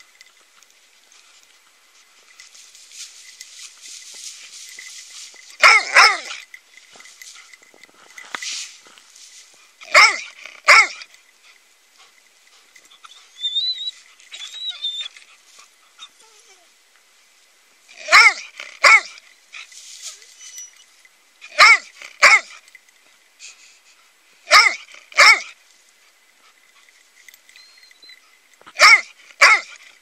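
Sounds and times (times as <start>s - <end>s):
dog barking: 5.6s - 6.4s, 9.8s - 11.0s, 18.0s - 19.2s, 21.5s - 22.5s, 24.5s - 25.6s, 28.7s - 29.8s.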